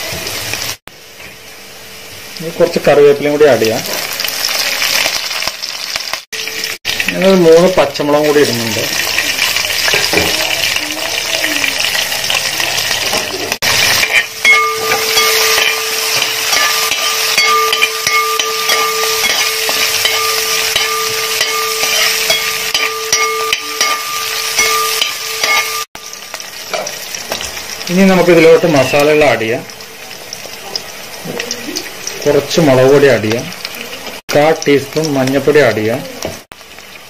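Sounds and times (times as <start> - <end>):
vegetables sizzling in hot oil: 0.0 - 37.0.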